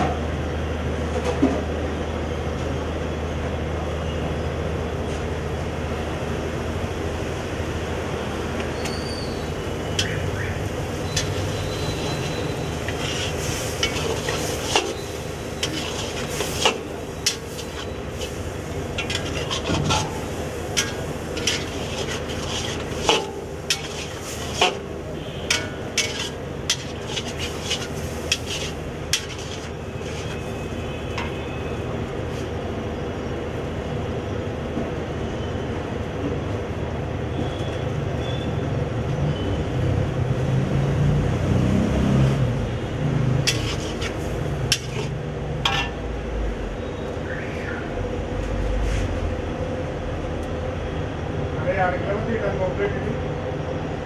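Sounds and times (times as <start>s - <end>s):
pan sizzling: 9.7s - 30.6s, 43.5s - 46.0s
ladle clanking against iron pan: 20.8s - 24.9s, 25.5s - 30.3s, 44.7s - 46.0s.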